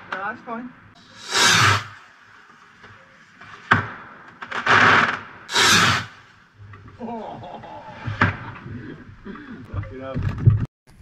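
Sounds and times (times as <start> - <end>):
sharp firework crack: 1.0 - 2.1, 3.6 - 6.3
firework hiss bursts: 1.0 - 2.4, 4.8 - 6.3.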